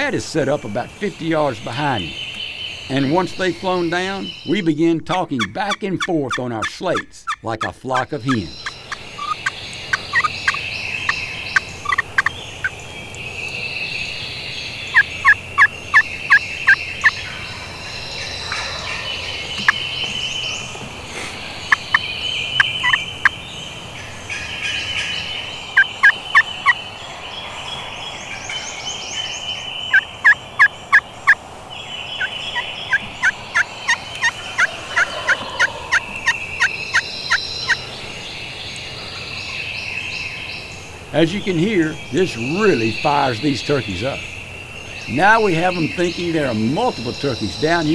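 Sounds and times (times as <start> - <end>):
high scratchy turkey calling: 0.0 - 27.0, 28.2 - 38.1, 40.9 - 47.9
turkey call hen yelps: 9.2 - 10.6, 11.8 - 12.3, 32.9 - 37.4.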